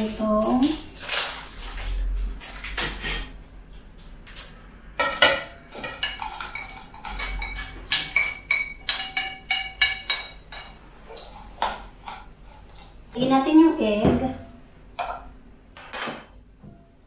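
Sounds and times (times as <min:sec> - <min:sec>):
chopsticks clinking on ceramic plate: 0:05.0 - 0:10.8.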